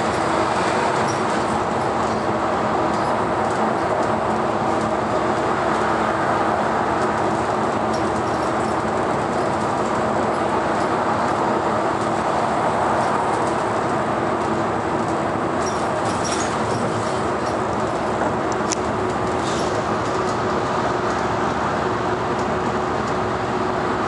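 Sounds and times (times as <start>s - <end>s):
bus engine hum: 0.0s - 24.0s
tyre and road noise: 0.0s - 24.0s.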